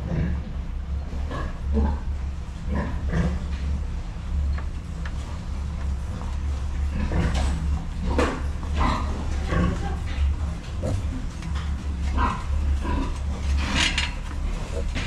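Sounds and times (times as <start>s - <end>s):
steady low hum: 0.0s - 15.0s
piglets grunting and squealing: 6.9s - 15.0s.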